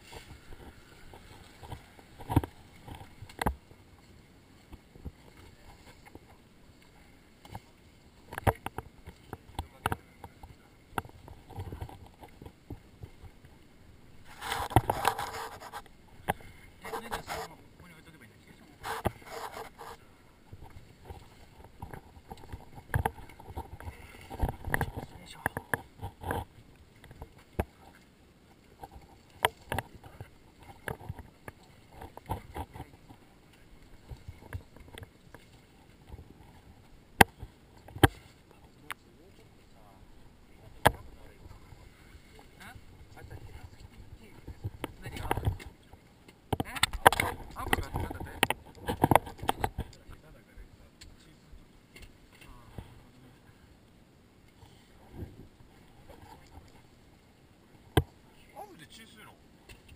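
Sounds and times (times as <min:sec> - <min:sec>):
fabric rubbing and rustling: 0:14.2 - 0:15.8, 0:18.8 - 0:20.0.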